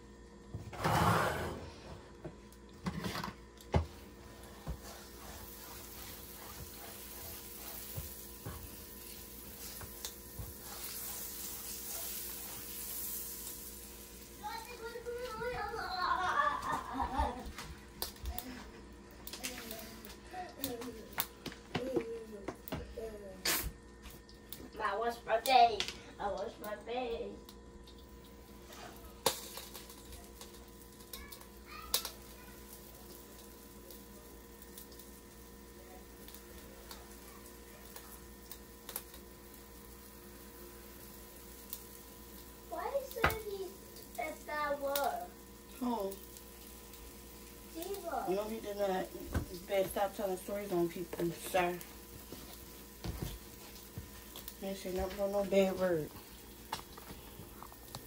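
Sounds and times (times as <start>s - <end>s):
water sizzling on hot griddle: 0.0s - 58.0s.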